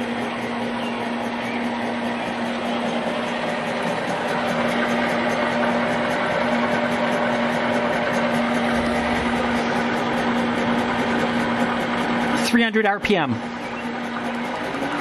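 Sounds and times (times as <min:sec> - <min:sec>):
electric motor whining: 0:00.0 - 0:12.6, 0:13.4 - 0:15.0
gear and drivetrain hum: 0:00.0 - 0:15.0.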